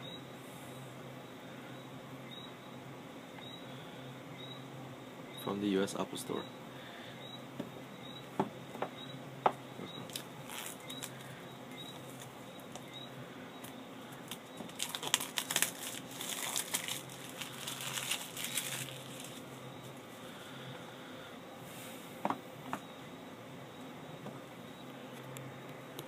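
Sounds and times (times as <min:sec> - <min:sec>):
crinkling and rubbing against box: 0:10.0 - 0:12.4, 0:14.2 - 0:20.0.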